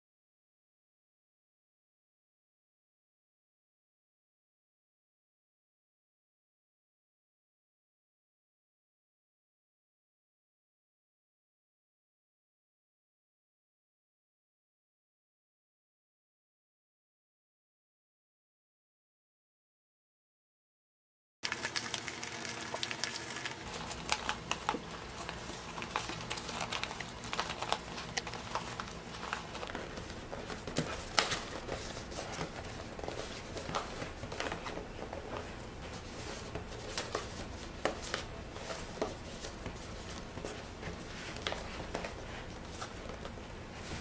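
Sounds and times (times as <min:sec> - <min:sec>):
stiff paper crinkling: 0:21.4 - 0:44.0.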